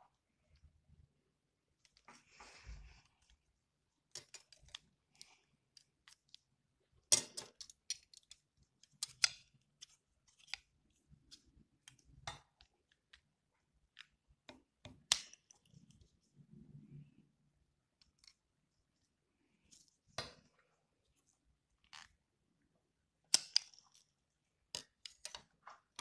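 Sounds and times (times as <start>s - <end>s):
scissors snipping plastic straws: 7.1s - 10.7s.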